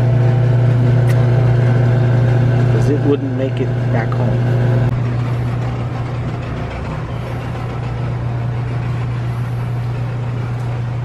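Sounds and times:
refrigerated display cases humming: 0.0s - 11.0s.

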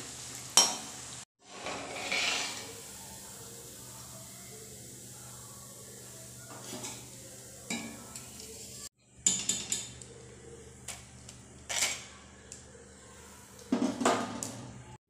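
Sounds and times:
metal spoon scraping a pan: 1.4s - 2.8s.

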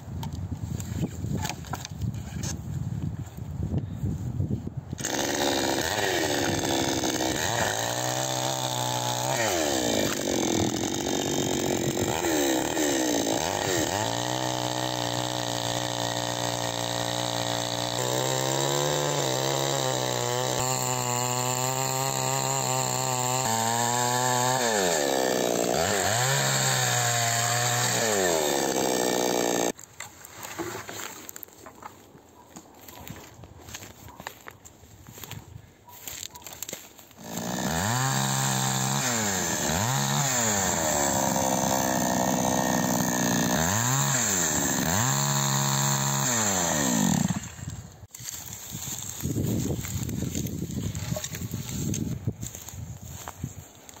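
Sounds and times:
chainsaw cutting log: 5.0s - 29.8s, 36.4s - 54.0s.

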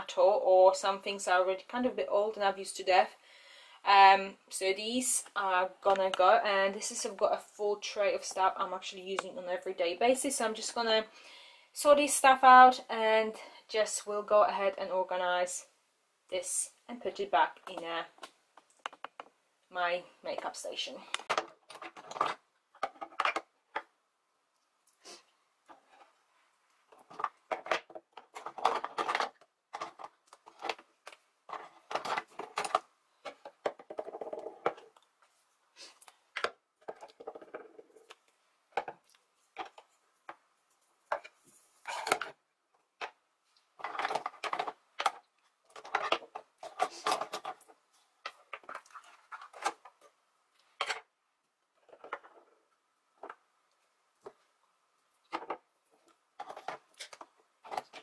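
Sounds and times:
makeup containers clacking and rattling: 21.2s - 23.9s, 27.0s - 35.0s, 36.4s - 38.1s, 43.8s - 50.0s, 55.3s - 58.0s.

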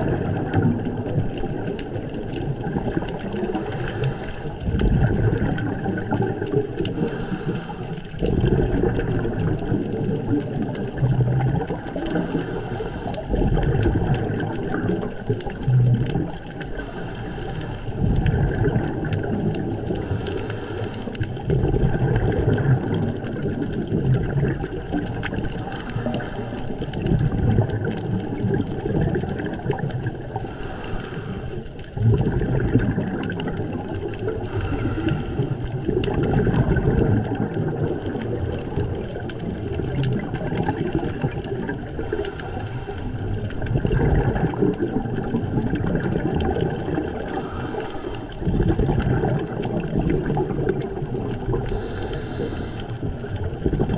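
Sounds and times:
gurgle of exhaled bubbles: 0.0s - 53.9s
diver inhaling through regulator: 3.4s - 4.8s, 6.7s - 8.1s, 12.0s - 13.4s, 16.7s - 18.1s, 19.8s - 21.4s, 25.6s - 26.8s, 30.2s - 31.8s, 34.3s - 35.9s, 41.9s - 43.4s, 47.2s - 48.5s, 51.6s - 53.1s.

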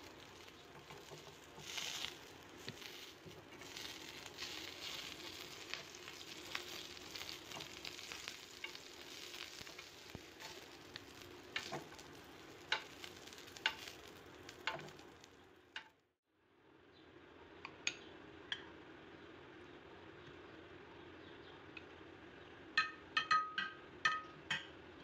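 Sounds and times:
chillies sizzling in a grill pan: 0.0s - 15.9s
tongs clicking on metal pan: 0.1s - 15.1s, 22.8s - 24.7s.

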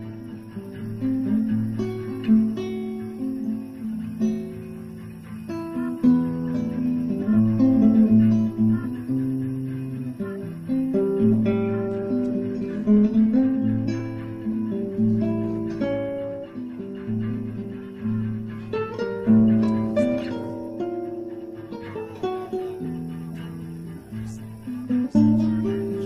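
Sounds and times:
plucked guitar: 0.0s - 26.0s.

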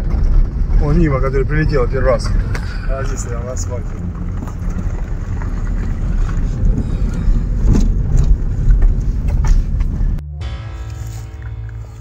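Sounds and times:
knocks and rattles: 0.0s - 1.6s
car engine and road rumble: 0.0s - 12.0s
music with held tones: 10.3s - 12.0s.

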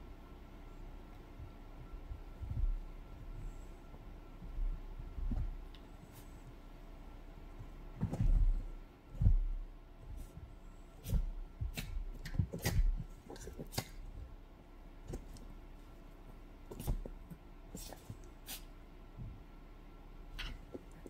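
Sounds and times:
dog moving on sofa: 8.0s - 11.4s.

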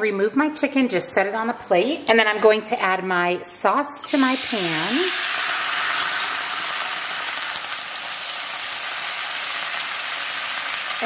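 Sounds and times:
sauce sizzling in a frying pan: 4.0s - 11.0s.

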